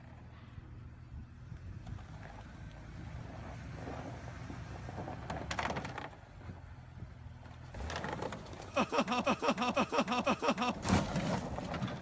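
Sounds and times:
engine running low: 0.0s - 12.0s
vehicle tipping over thump: 4.9s - 6.2s, 7.7s - 8.8s, 10.7s - 12.0s
scraping clatter on concrete: 7.7s - 8.7s, 10.8s - 12.0s
person laughing: 8.7s - 10.9s.

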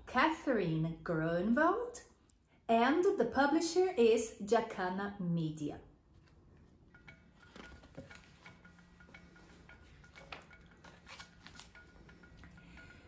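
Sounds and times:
book pages turning: 10.1s - 12.0s.

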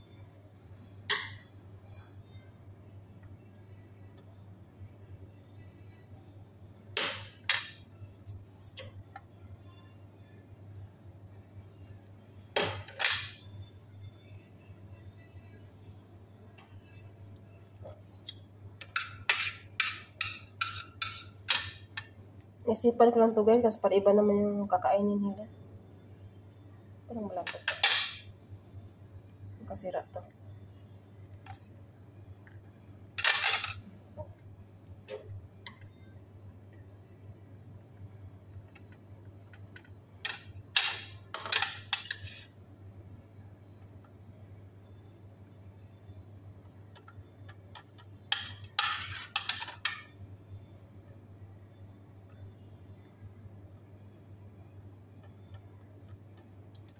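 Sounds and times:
low steady hum: 0.0s - 56.9s
metal utensil scraping: 18.8s - 21.7s, 48.8s - 50.0s
kitchen scraping and rustling: 48.3s - 50.0s.

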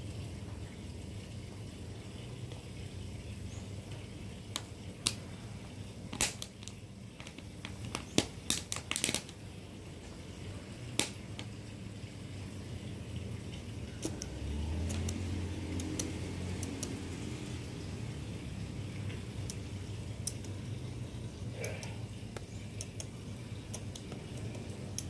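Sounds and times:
sharp clicks and taps: 14.0s - 17.0s, 19.1s - 20.7s, 21.6s - 25.0s.

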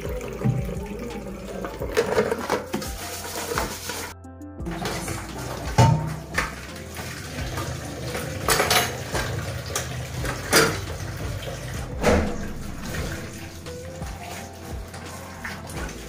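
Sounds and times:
tap water running into sink: 0.0s - 16.0s
dishes clinking: 8.4s - 11.0s.

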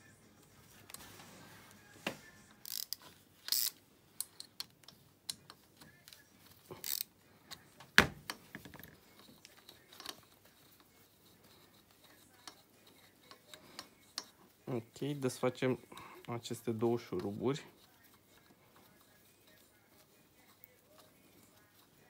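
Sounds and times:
hand tool clicks and scrapes: 2.6s - 14.4s.

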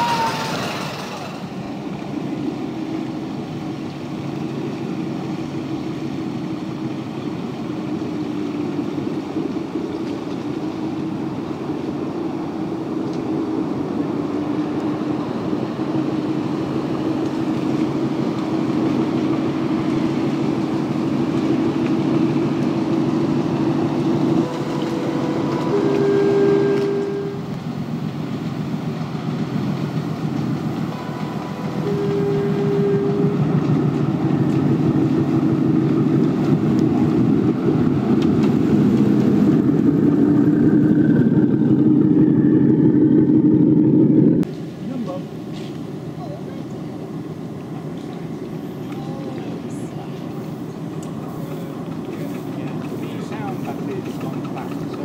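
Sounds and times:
miniature locomotive horn toots: 24.4s - 27.6s, 30.9s - 33.7s.

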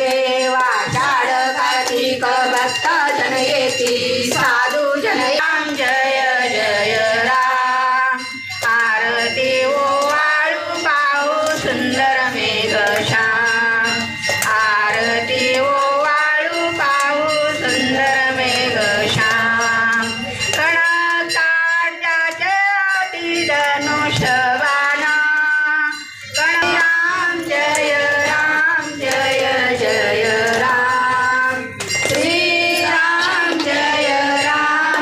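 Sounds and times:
women singing a hymn: 0.0s - 35.0s.

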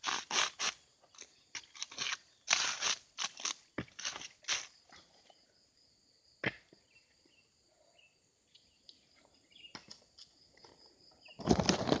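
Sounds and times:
faint bird chirps: 6.8s - 10.0s.

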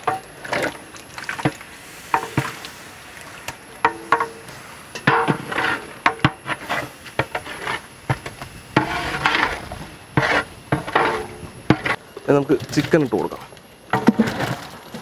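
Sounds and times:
metal ladle scraping a pot: 5.0s - 12.0s.

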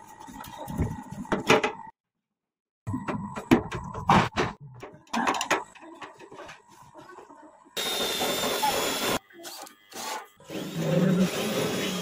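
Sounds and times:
drill boring through sheet metal: 7.8s - 12.0s.

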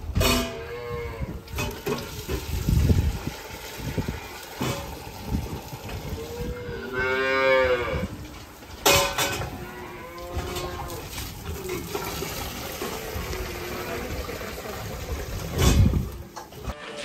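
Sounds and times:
calf mooing: 6.3s - 8.2s, 9.2s - 11.1s, 16.6s - 17.0s.

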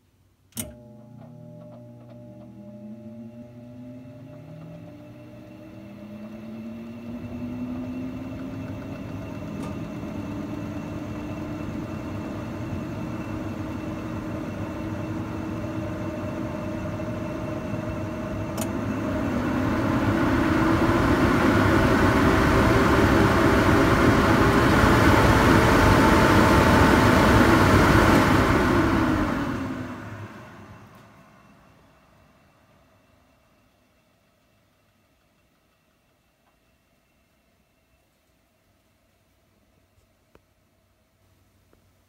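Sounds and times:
range hood fan whining: 0.4s - 33.6s
fan airflow rush: 5.6s - 30.9s.

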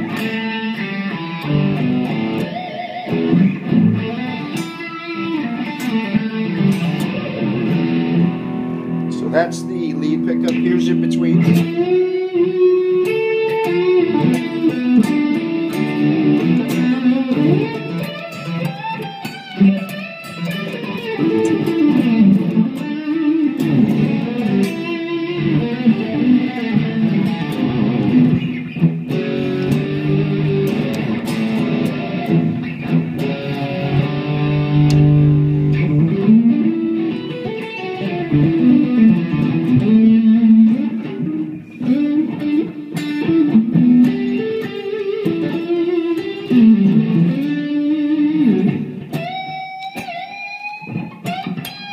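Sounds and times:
overdriven electric guitar riffs: 0.0s - 51.9s.

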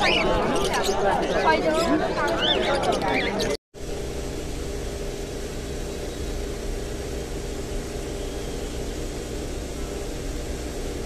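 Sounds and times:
machine hum with hiss: 3.8s - 11.0s.

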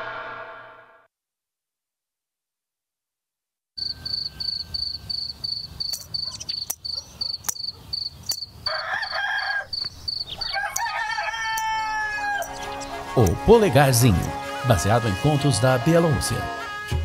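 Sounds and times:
cricket chirping: 3.8s - 10.6s
rooster calling: 8.6s - 13.2s.

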